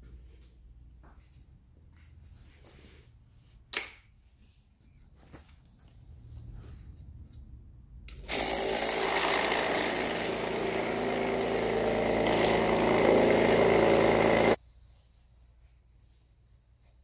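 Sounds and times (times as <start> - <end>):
vibratory tumbler running: 8.3 - 14.6.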